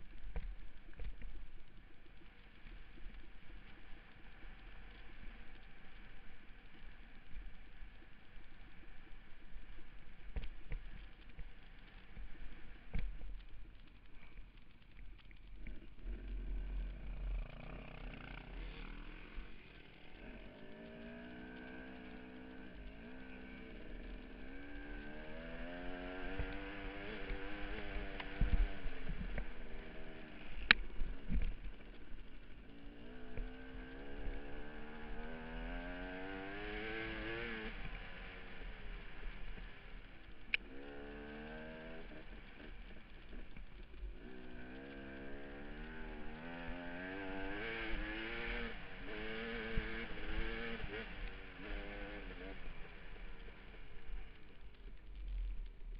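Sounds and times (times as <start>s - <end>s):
motorcycle engine revving: 15.6s - 55.7s.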